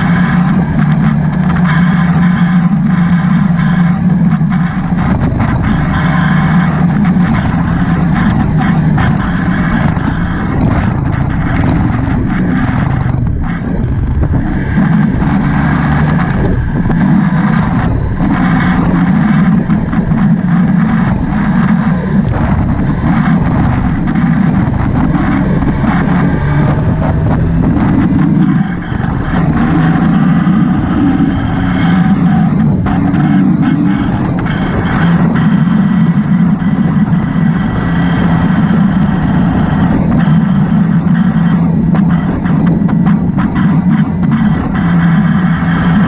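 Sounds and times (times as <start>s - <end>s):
motorcycle engine and road noise: 0.0s - 46.0s
wind rushing over microphone: 0.0s - 46.0s.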